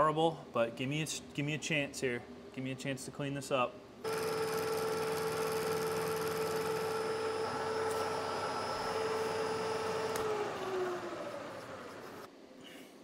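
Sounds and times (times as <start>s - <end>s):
milling machine running: 4.1s - 12.3s.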